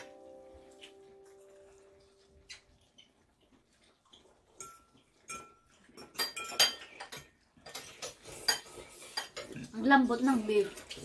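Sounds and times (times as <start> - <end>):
metal fork clinking against bowl: 4.6 - 7.9.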